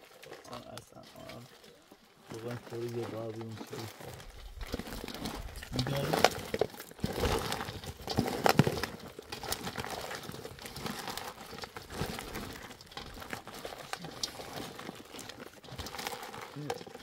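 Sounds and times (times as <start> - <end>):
dry bread crackling and crunching: 0.0 - 17.0.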